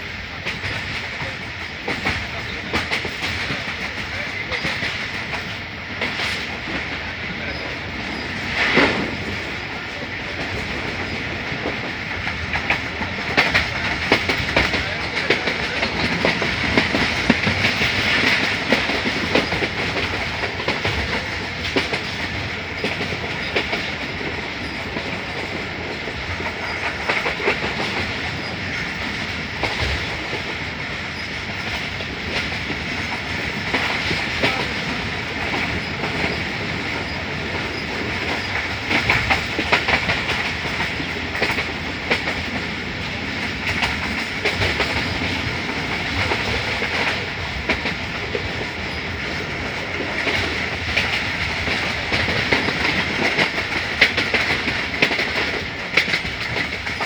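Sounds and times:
train rumble and air rush: 0.0 - 57.0
wheels clacking over rail joints: 0.3 - 57.0.

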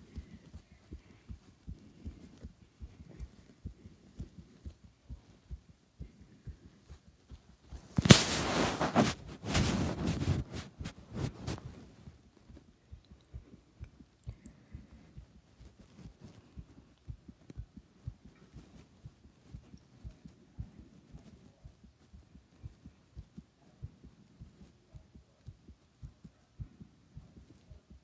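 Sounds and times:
fast human heartbeat: 0.0 - 28.0
phone rubbing against clothing: 7.7 - 12.1, 14.4 - 24.8.

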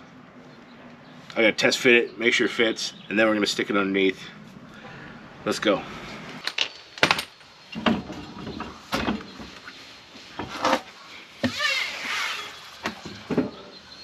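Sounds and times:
wheel clunks and knocks: 12.8 - 13.8.

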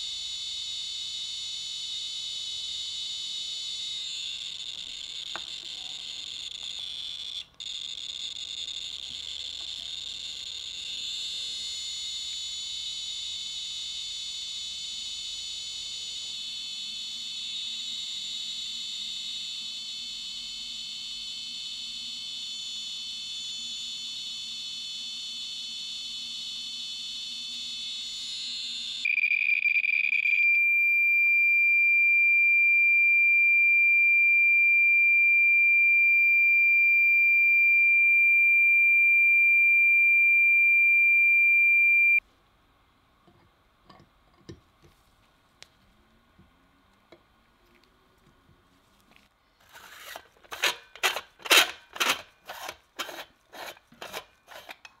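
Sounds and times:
survey meter high-pitched tone: 25.2 - 42.2.

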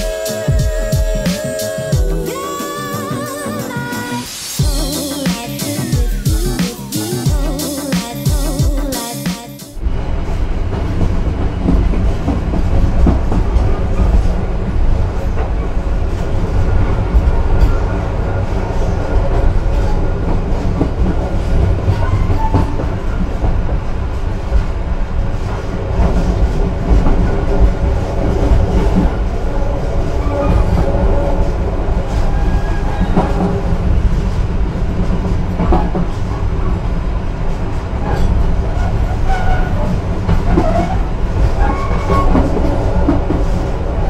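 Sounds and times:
train carriage rumble: 0.0 - 44.0
wheels clicking on rails: 10.0 - 44.0.

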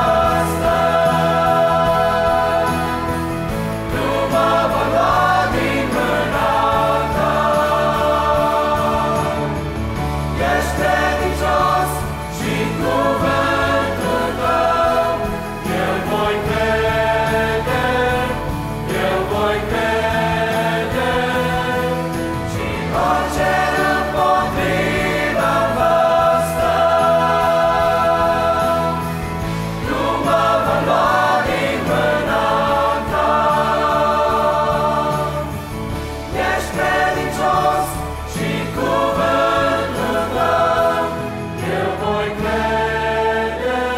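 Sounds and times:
choir singing a hymn: 0.0 - 43.9
low instrumental accompaniment: 0.0 - 43.9.

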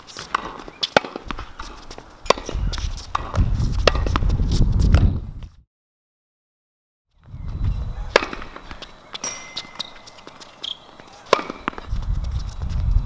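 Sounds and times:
racket striking ball: 0.0 - 5.2, 8.0 - 11.9.

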